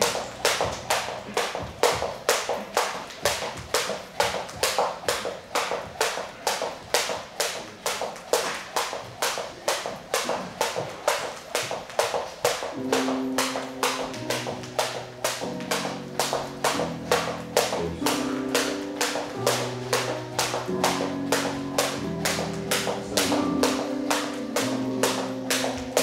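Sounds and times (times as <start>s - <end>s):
skipping rope slapping floor: 0.0s - 26.0s.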